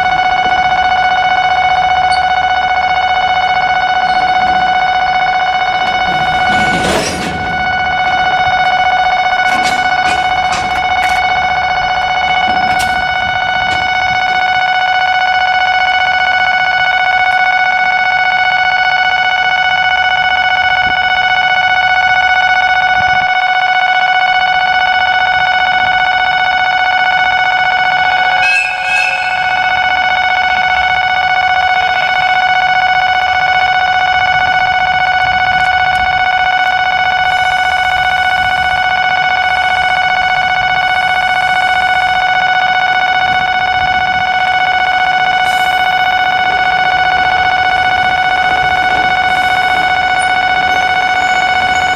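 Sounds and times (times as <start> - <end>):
high-pitched tone: 0.0 - 15.9, 28.2 - 32.3, 46.5 - 51.9.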